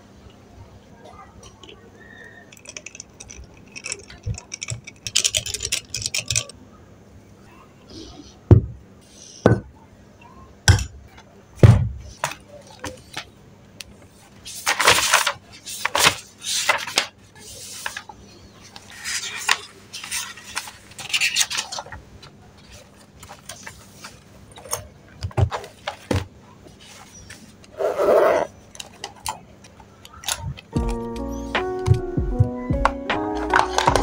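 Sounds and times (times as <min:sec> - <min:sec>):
paper sheets rustling: 0:14.2 - 0:24.7, 0:33.2 - 0:34.0
zipper pulled open: 0:27.8 - 0:28.5.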